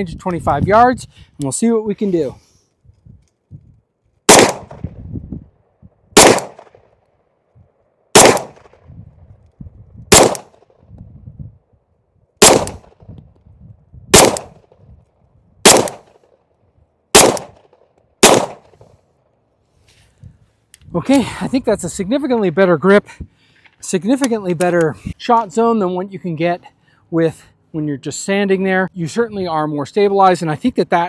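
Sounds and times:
gunshots: 4.3s - 4.9s, 6.2s - 6.8s, 8.1s - 8.8s, 10.1s - 10.7s, 12.4s - 13.0s, 14.1s - 14.6s, 15.6s - 16.2s, 17.1s - 18.8s.

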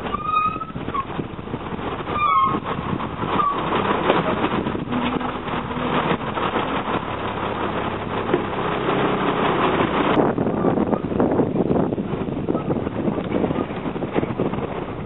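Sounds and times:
heavy diesel engines rumbling: 0.0s - 15.0s
thinner engine rumble: 0.0s - 15.0s.

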